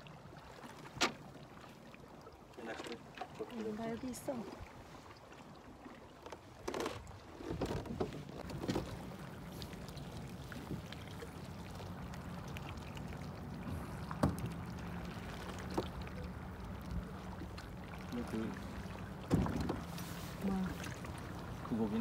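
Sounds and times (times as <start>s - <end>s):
water sloshing against kayak hull: 0.0s - 22.0s
light knocks: 14.1s - 14.6s, 19.2s - 19.9s.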